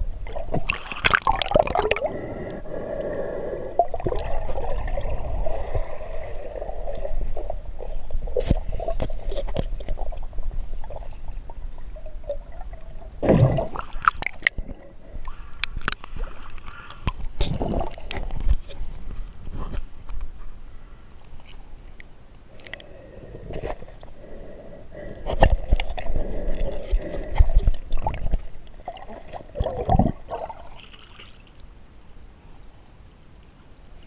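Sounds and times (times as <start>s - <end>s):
underwater rumble of moving water: 0.0s - 21.9s.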